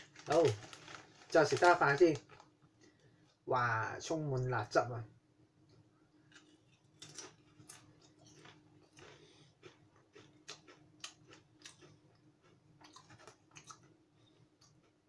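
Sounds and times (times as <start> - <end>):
chip crunching while chewed: 0.0 - 2.5, 6.3 - 15.0.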